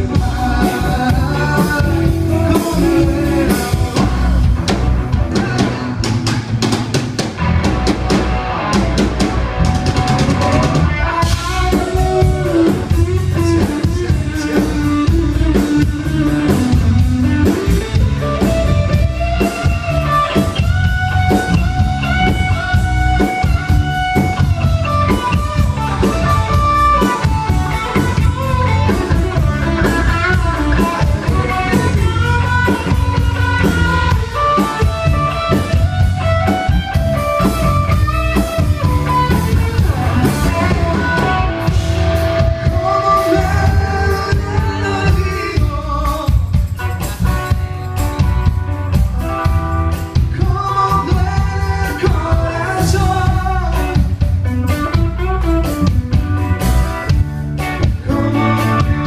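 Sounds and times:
man singing into microphone: 0.0 - 4.5, 5.2 - 6.3, 10.5 - 17.0, 28.6 - 35.1, 39.7 - 41.8, 42.5 - 46.7, 50.2 - 54.2, 58.0 - 59.0
drum kit: 0.0 - 59.0
electric guitars: 0.0 - 59.0.

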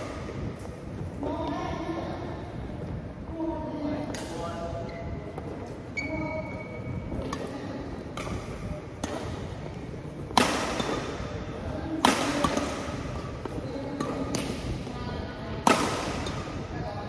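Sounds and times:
racket hitting shuttlecock: 4.0 - 4.5, 7.2 - 14.8, 15.6 - 16.6.

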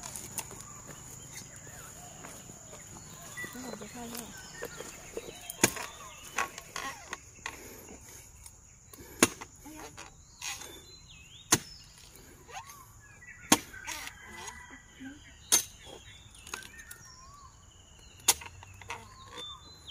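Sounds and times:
sharp chopping strikes: 11.5 - 11.8.

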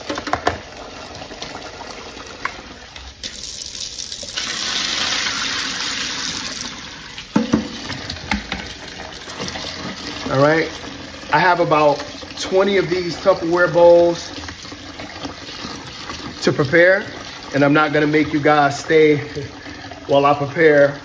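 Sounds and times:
water splashing into a steel sink: 0.0 - 21.0
knocks: 7.4 - 8.6.

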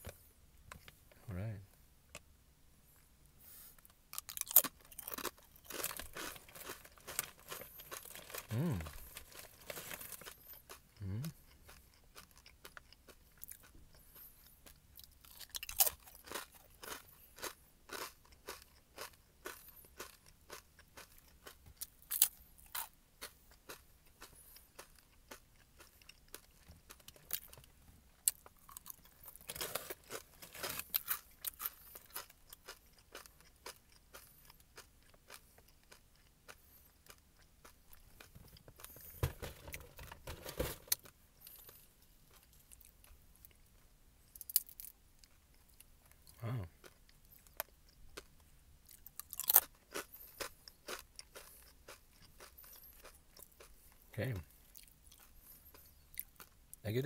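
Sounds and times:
crackers being chewed: 3.8 - 56.8.

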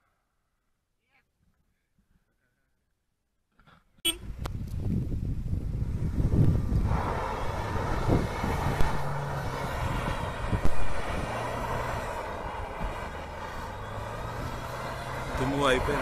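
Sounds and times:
car engine working hard: 4.2 - 16.0
tyres spinning on sandy dirt: 4.5 - 16.0.

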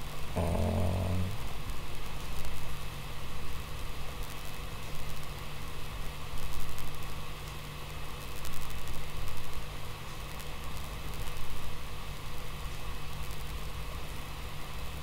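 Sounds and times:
background hiss: 0.0 - 5.3
low electrical hum: 0.0 - 15.0.

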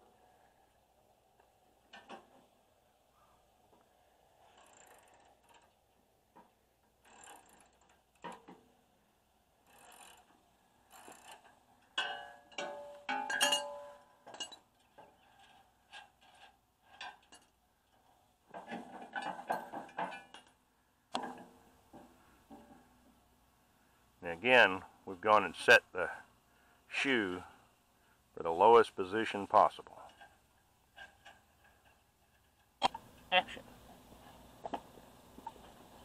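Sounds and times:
metal clinks: 10.9 - 17.5.

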